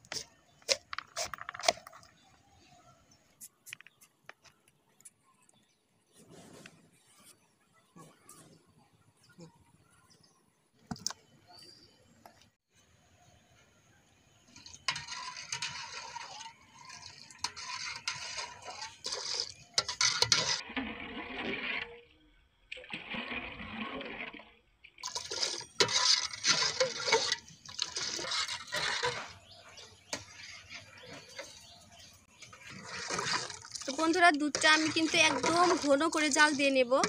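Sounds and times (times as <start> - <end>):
milk pouring and splashing in pot: 14.5 - 22.1, 22.7 - 31.6, 32.3 - 37.0.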